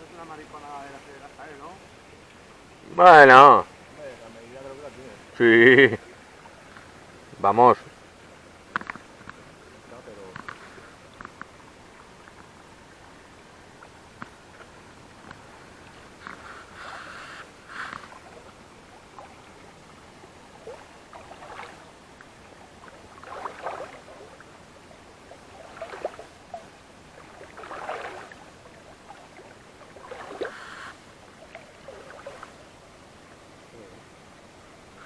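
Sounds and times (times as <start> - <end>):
water sloshing and splashing: 10.2 - 32.7.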